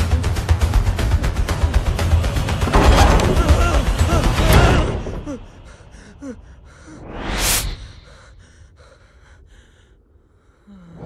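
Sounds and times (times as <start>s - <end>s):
man breathing hard: 5.2s - 11.0s.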